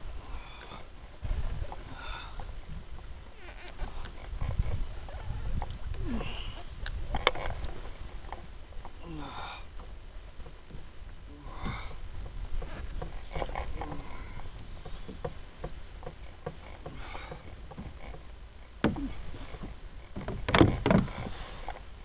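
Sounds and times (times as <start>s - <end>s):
water lapping against kayak hull: 0.0s - 22.0s
wind rumble on microphone: 0.0s - 22.0s
light ticks: 6.8s - 9.0s
knocks and splashes: 11.5s - 21.6s.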